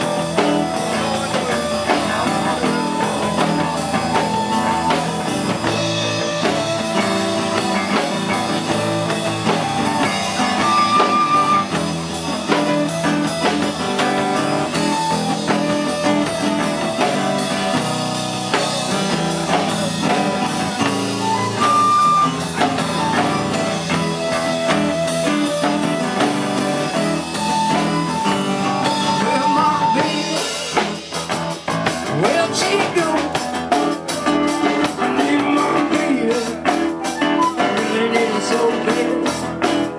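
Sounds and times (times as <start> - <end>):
flute holding long notes: 0.0 - 18.1, 21.0 - 30.6, 37.2 - 37.8
acoustic guitar: 0.0 - 39.9
drum kit: 0.0 - 39.9
electric bass: 0.0 - 39.9.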